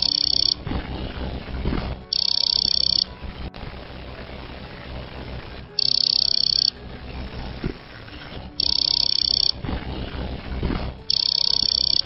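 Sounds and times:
hard disk buzzing beep: 0.0 - 0.7, 2.0 - 3.2, 4.0 - 6.8, 8.5 - 10.2, 11.0 - 12.0.

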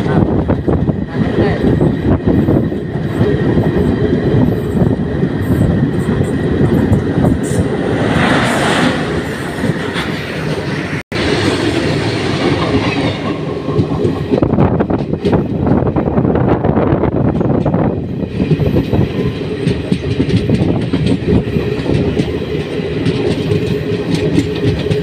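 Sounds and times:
train wheels clattering on rail: 0.0 - 25.0
wind: 0.0 - 25.0
locomotive passing close: 5.1 - 14.4.

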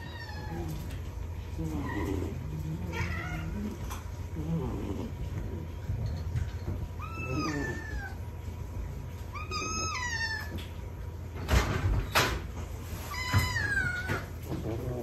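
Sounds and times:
cat meowing: 1.7 - 3.8, 7.0 - 8.2, 9.3 - 10.7.

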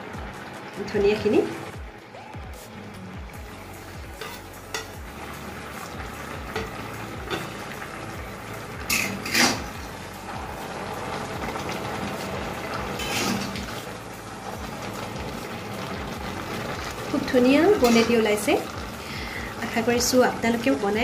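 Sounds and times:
curry simmering in a wok: 3.3 - 21.0
spatula stirring a pot: 4.1 - 5.0.

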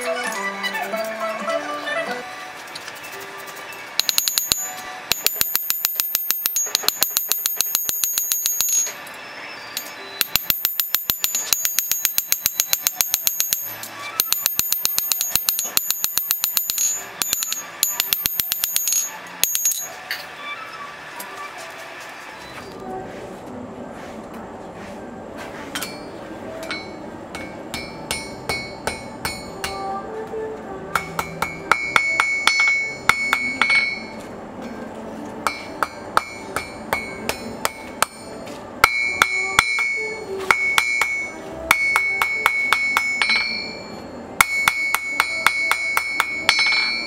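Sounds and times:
anvil ringing: 4.0 - 9.1, 9.8 - 20.2, 25.8 - 29.8, 31.0 - 34.2, 35.5 - 47.0
hammer blows on anvil: 25.8 - 29.8, 30.9 - 34.2, 35.4 - 47.0.

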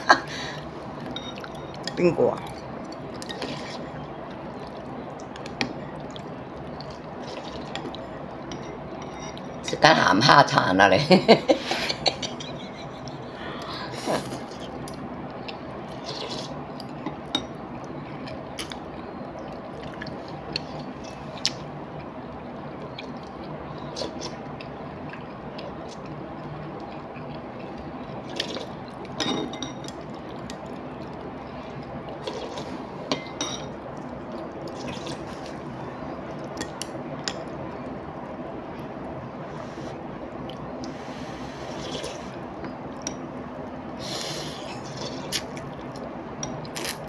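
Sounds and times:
steady background hum: 0.0 - 47.0
slurping noodles and soup: 3.2 - 3.8, 15.9 - 16.6, 32.2 - 32.9, 34.7 - 35.6, 40.8 - 42.4, 44.0 - 45.6.

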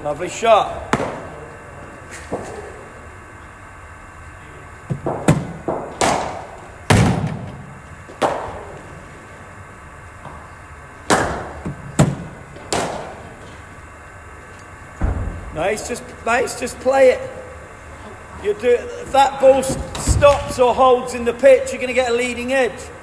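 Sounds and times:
cricket bat striking ball: 0.9 - 1.4, 4.9 - 7.5, 8.2 - 8.7, 11.0 - 13.2.

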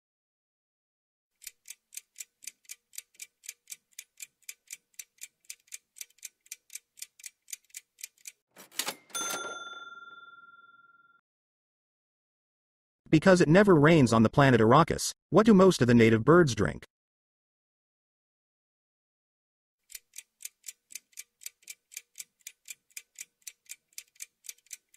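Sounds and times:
clock ticking: 1.4 - 9.0, 19.8 - 24.9
bell-like chime: 8.8 - 11.2.

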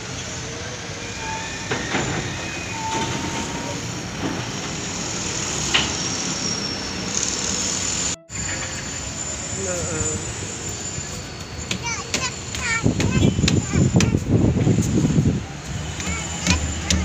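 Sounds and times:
rumble of traffic and machinery: 0.0 - 17.0
scattered knocks: 11.7 - 14.2, 15.9 - 17.0.

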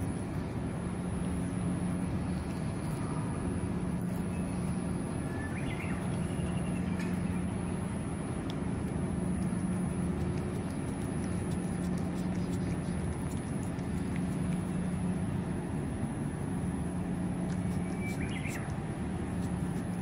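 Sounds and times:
cat licking and chewing: 0.0 - 5.0, 6.0 - 20.0
low mechanical hum: 0.0 - 20.0.

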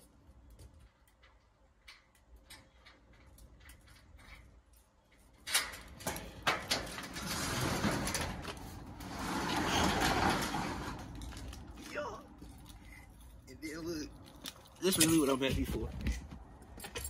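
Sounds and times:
steel roll-up door rattling: 2.0 - 11.9
metal door clatter: 5.2 - 11.8.

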